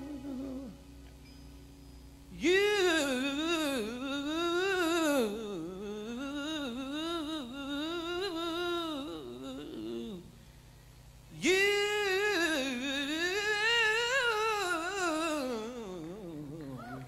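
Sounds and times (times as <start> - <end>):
person singing wordless vocal run: 0.0 - 0.8, 11.4 - 17.0.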